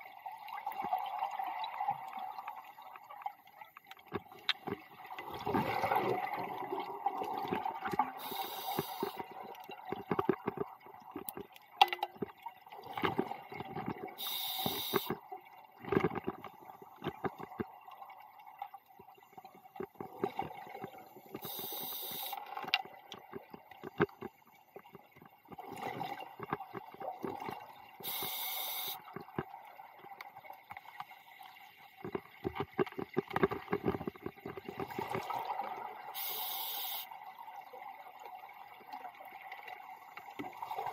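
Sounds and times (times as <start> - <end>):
gurgling exhaled bubbles: 4.9 - 8.4
faint steady tone: 7.6 - 10.4, 13.9 - 26.2, 27.4 - 32.1, 35.9 - 40.9
regulator hissing inhale: 8.2 - 9.2, 14.2 - 15.1, 21.4 - 22.4, 28.0 - 29.0, 36.2 - 37.1.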